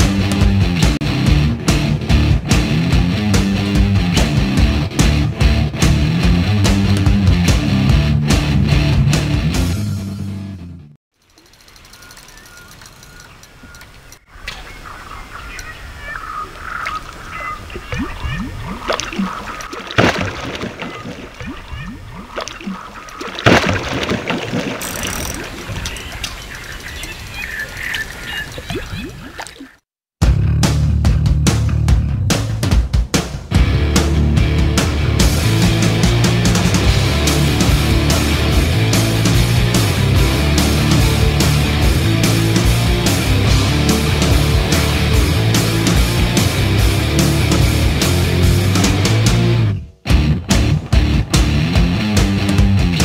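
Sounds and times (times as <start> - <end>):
heavy rock music: 0.0 - 11.0, 30.2 - 53.0
fish thrashing and splashing water: 16.8 - 29.8.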